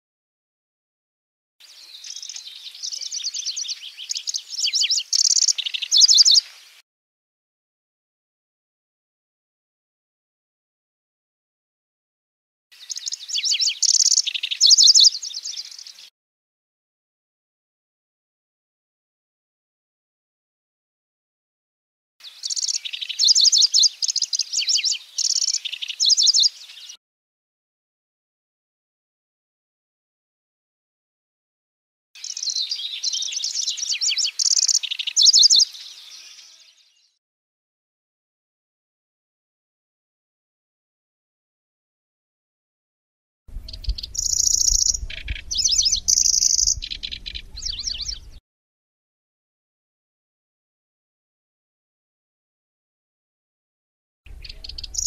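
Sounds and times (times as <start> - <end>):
warbler singing: 1.6 - 6.6, 12.8 - 16.1, 22.2 - 27.0, 32.2 - 37.2, 43.5 - 48.4, 54.3 - 55.0.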